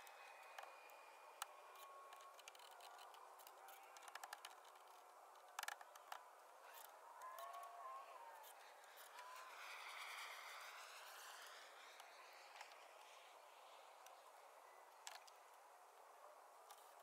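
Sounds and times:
small clicks: 0:00.0 - 0:07.7, 0:14.9 - 0:17.0
faint hiss: 0:06.1 - 0:17.0.

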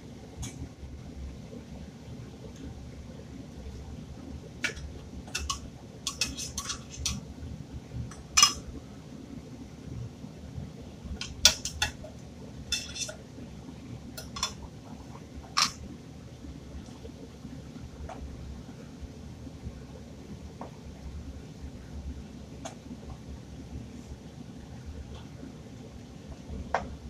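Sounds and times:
low steady hum: 0:00.0 - 0:27.0
fork clinking and scraping in tin: 0:04.6 - 0:07.2, 0:08.4 - 0:08.6, 0:11.2 - 0:12.1, 0:12.7 - 0:13.2, 0:14.2 - 0:14.6.

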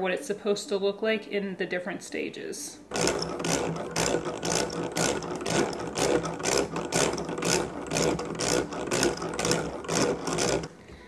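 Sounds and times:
butter churn gears whirring: 0:02.9 - 0:10.8
paddles turning through cream: 0:02.9 - 0:10.8.

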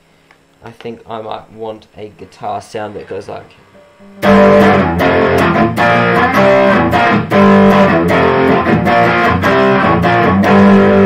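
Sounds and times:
electric guitar strumming chords: 0:03.7 - 0:11.0.

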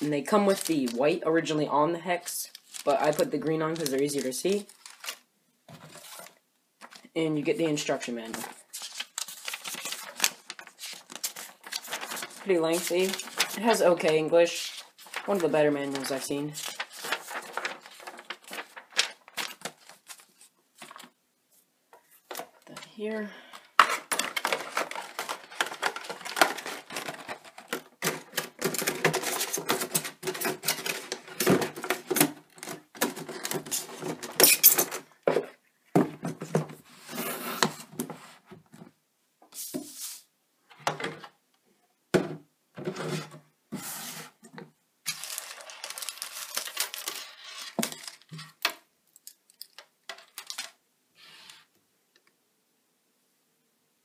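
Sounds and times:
plastic tray crinkling: 0:02.5 - 0:07.0, 0:08.4 - 0:21.2, 0:23.6 - 0:35.4, 0:45.1 - 0:50.8.

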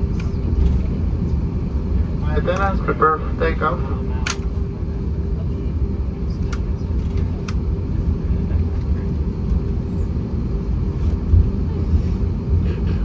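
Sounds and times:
airplane cabin rumble: 0:00.0 - 0:13.0.

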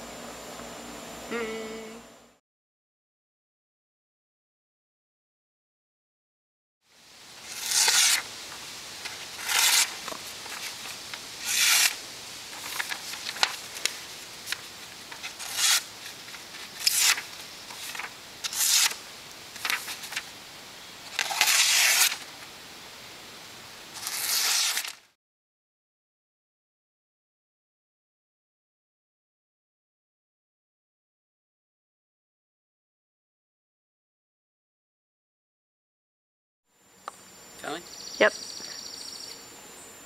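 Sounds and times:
knife slicing paper: 0:07.4 - 0:08.3, 0:09.0 - 0:12.0, 0:12.6 - 0:19.0, 0:19.6 - 0:20.3, 0:21.1 - 0:22.3, 0:24.0 - 0:25.1
paper rustling: 0:07.4 - 0:20.3, 0:21.1 - 0:22.5, 0:24.0 - 0:25.1.

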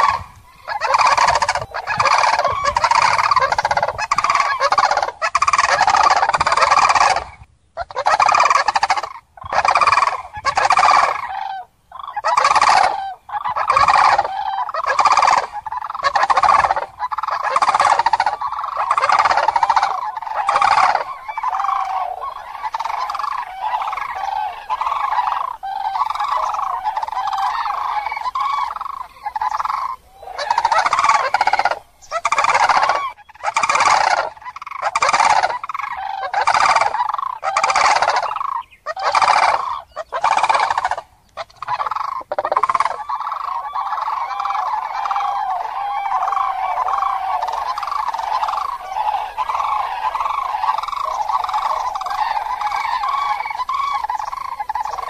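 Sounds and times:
cranes calling: 0:00.0 - 0:55.0.

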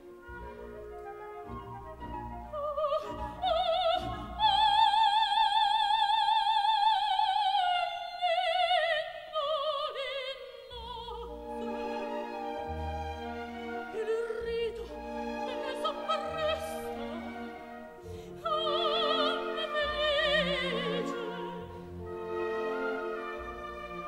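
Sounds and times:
soft orchestral accompaniment: 0:00.0 - 0:24.0
soprano singing opera: 0:01.8 - 0:12.6, 0:13.6 - 0:21.8.

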